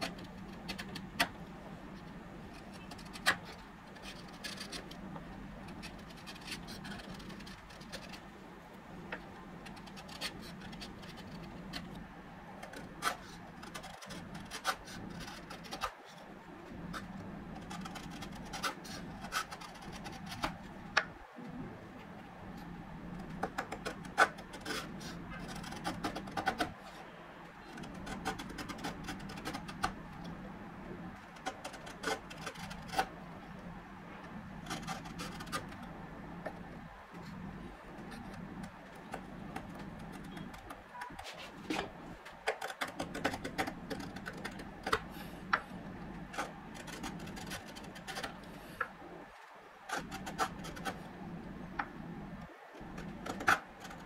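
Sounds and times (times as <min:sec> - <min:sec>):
chisel scraping wood: 0:02.0 - 0:05.0, 0:05.6 - 0:08.3, 0:09.1 - 0:12.0, 0:12.6 - 0:15.9, 0:16.8 - 0:21.1, 0:23.2 - 0:27.1, 0:27.7 - 0:30.3, 0:31.2 - 0:33.1, 0:34.5 - 0:36.6, 0:37.2 - 0:49.0, 0:49.9 - 0:51.1, 0:52.8 - 0:54.0
shavings clicking and snapping: 0:23.2 - 0:26.8, 0:27.6 - 0:30.4, 0:37.9 - 0:49.0, 0:52.8 - 0:54.0.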